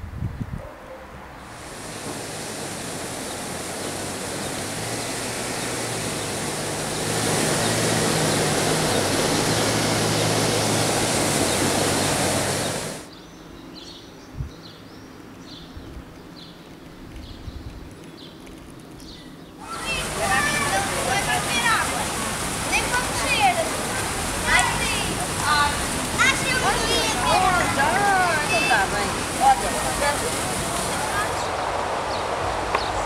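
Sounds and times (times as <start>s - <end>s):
water gushing into river: 1.4s - 13.1s, 19.6s - 33.0s.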